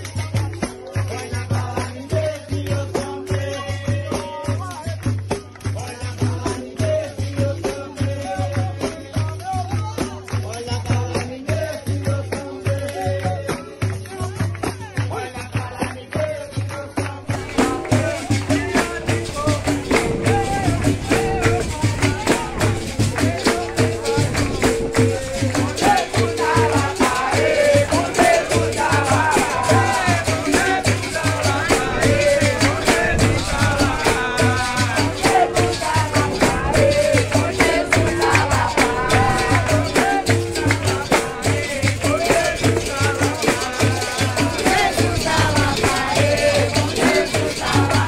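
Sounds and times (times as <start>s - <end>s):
group singing: 0.0s - 4.8s, 5.6s - 48.0s
percussion: 0.0s - 48.0s
berimbau with rattle: 17.3s - 48.0s.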